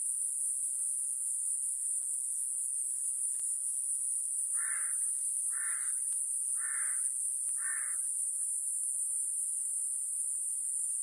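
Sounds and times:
cicada high-pitched buzz: 0:00.0 - 0:11.0.

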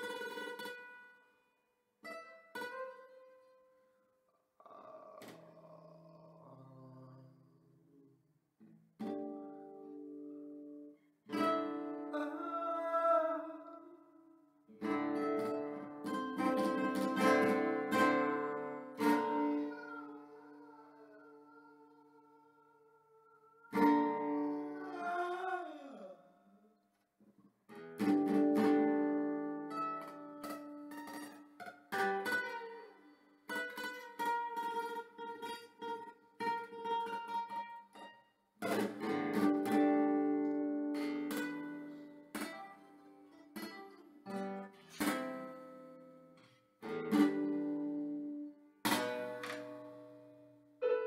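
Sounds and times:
classical guitar strumming chords: 0:00.0 - 0:01.2, 0:08.6 - 0:13.0, 0:14.7 - 0:21.7, 0:23.7 - 0:25.2, 0:27.7 - 0:51.0.

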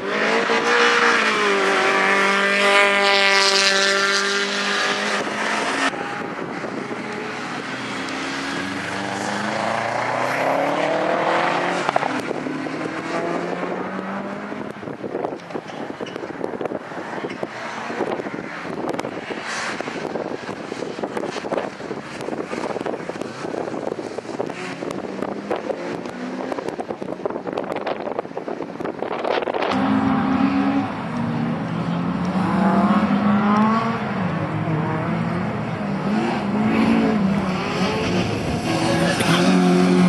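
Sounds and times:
rally car accelerating: 0:00.0 - 0:14.9, 0:28.8 - 0:40.0
rally car engine high revs: 0:34.7 - 0:40.0.

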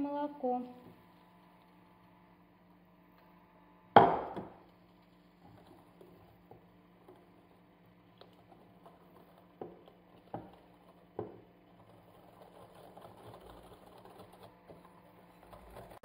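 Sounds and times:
faint steady whisking: 0:00.0 - 0:03.5, 0:04.6 - 0:16.0.

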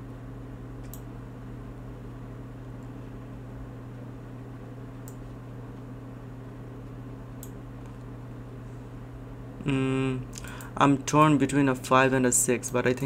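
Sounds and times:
steady low hum: 0:00.0 - 0:13.0
computer mouse clicks: 0:00.8 - 0:01.1, 0:05.0 - 0:05.2.

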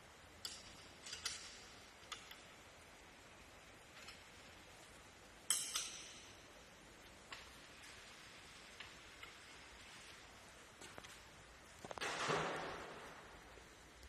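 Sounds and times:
wrench clicking on metal bolts: 0:00.3 - 0:02.5, 0:05.4 - 0:06.4.

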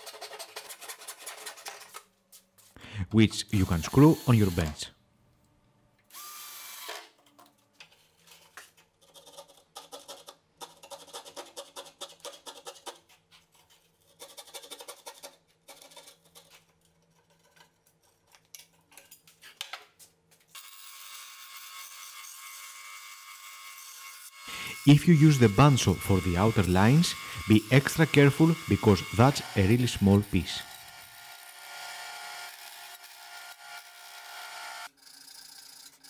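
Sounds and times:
fret saw scratching wood: 0:00.0 - 0:02.0, 0:03.4 - 0:04.9, 0:23.8 - 0:36.0
bandsaw running: 0:03.4 - 0:04.9, 0:20.6 - 0:36.0
cordless drill: 0:03.7 - 0:04.8, 0:06.1 - 0:07.1, 0:20.6 - 0:35.6.

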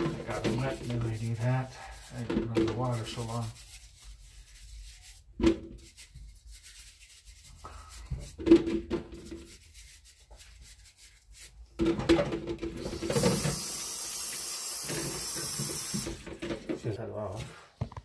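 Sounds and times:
produce scrubbed in steel sink: 0:00.0 - 0:11.8, 0:12.7 - 0:17.6
tap water running into sink: 0:12.7 - 0:16.6.

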